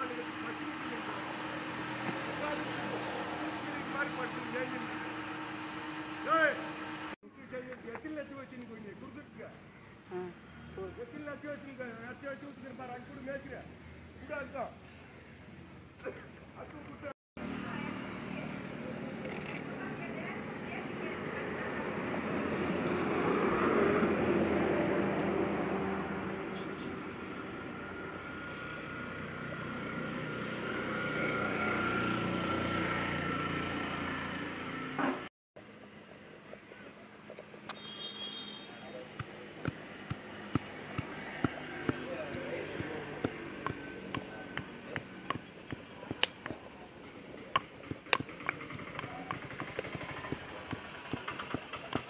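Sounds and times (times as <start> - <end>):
engine-like drone: 0.0 - 7.2, 39.0 - 52.0
pestle pounding in stone mortar: 39.2 - 46.8, 47.6 - 52.0.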